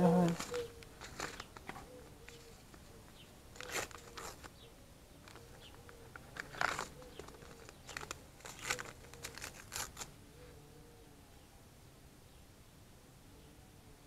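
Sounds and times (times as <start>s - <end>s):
paper packet crinkling: 0.2s - 2.9s, 3.6s - 4.5s, 6.1s - 10.1s.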